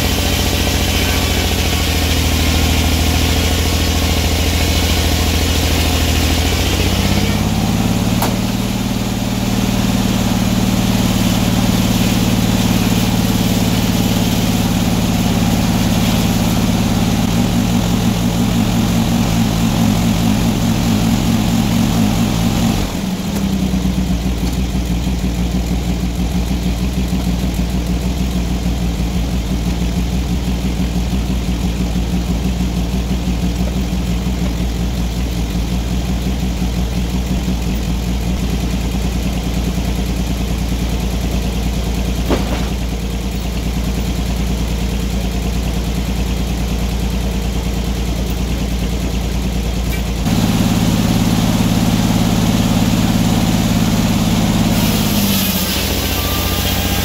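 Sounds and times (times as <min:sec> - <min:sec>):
circular saw cutting log: 0:00.0 - 0:24.6, 0:50.2 - 0:57.0
sawmill running hum: 0:00.0 - 0:57.0.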